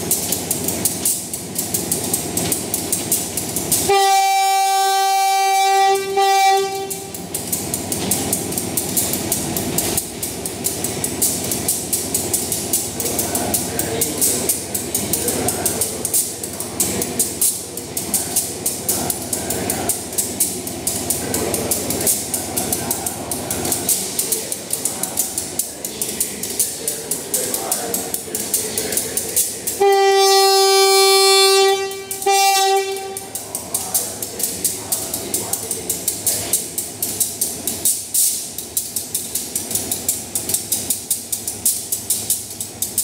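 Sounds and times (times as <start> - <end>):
train engine rumble: 0.0 - 43.0
locomotive horn blasts: 3.8 - 7.2, 29.7 - 33.6.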